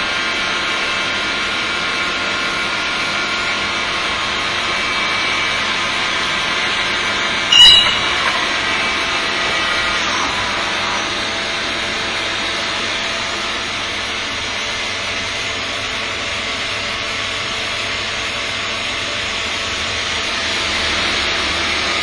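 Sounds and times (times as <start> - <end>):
hissing machinery noise: 2.8 - 15.6
faint steady tone: 7.5 - 8.4.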